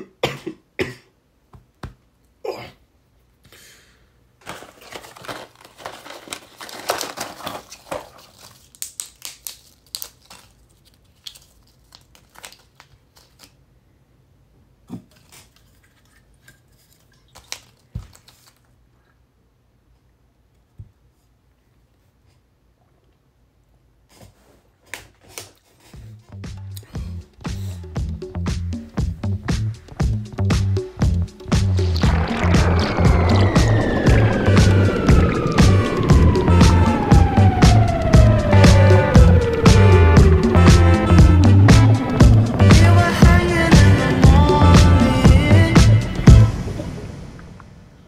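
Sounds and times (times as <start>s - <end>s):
packaging crinkling and tearing: 4.4s - 13.6s, 15.2s - 18.8s.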